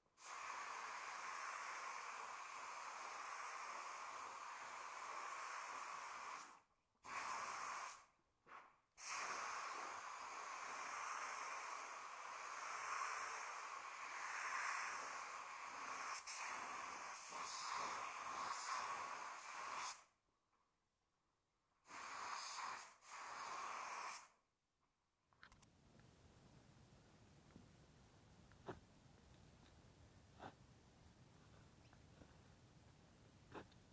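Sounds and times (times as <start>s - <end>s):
spray gun hissing: 0.2s - 8.1s, 9.0s - 20.1s, 21.8s - 24.4s.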